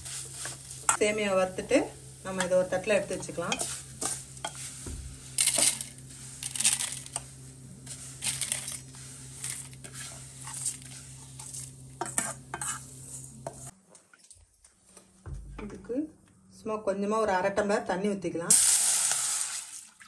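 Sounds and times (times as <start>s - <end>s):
steady low hum: 0.0s - 13.8s
spoon scraping metal pan: 3.2s - 4.7s, 9.4s - 13.7s.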